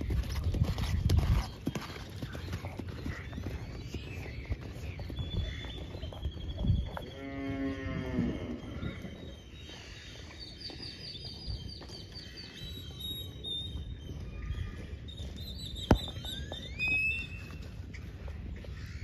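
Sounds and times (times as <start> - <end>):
birds chirping: 0.0 - 19.0
cow mooing: 7.1 - 8.8.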